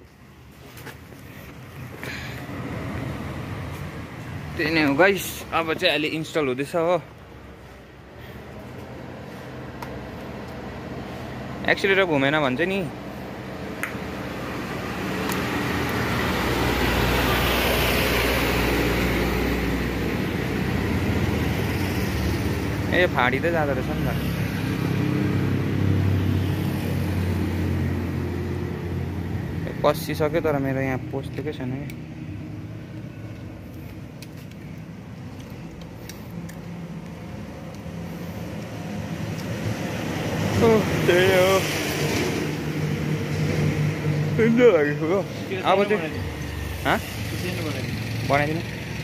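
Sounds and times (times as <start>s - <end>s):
vehicle rumbling past: 1.4s - 49.0s.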